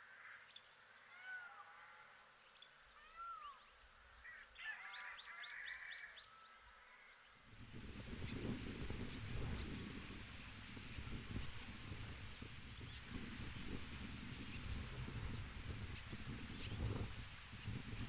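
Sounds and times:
high insect drone: 0.0s - 18.0s
wind rumble on microphone: 7.5s - 18.0s.

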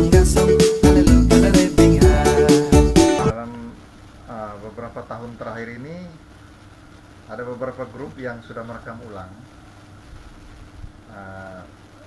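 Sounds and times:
man's drawn-out syllable: 0.0s - 3.5s
faint steady hum: 1.2s - 12.0s.

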